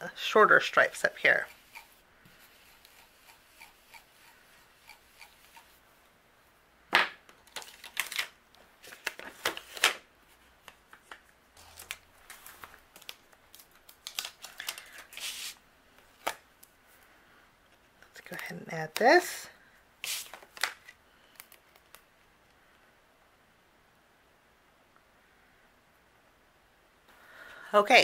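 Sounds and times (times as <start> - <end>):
ink brush dabbing: 0.8 - 5.8
paper rustling and scraping: 7.6 - 15.6.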